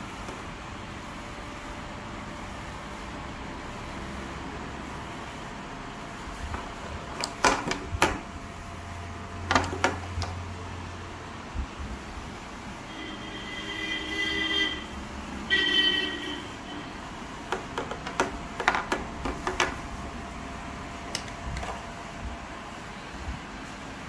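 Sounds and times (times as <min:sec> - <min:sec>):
vehicle horn honking: 0:12.9 - 0:17.0.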